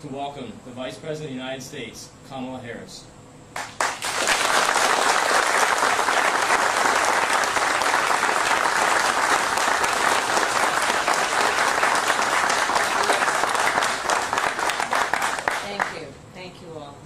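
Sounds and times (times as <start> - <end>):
crowd applauding: 3.6 - 16.0.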